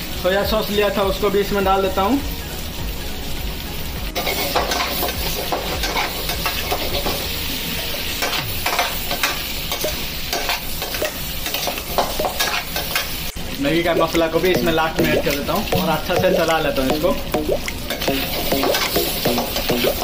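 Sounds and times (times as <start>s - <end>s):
food sizzling in a hot pan: 0.0s - 20.0s
metal spatula scraping a pan: 4.2s - 7.2s.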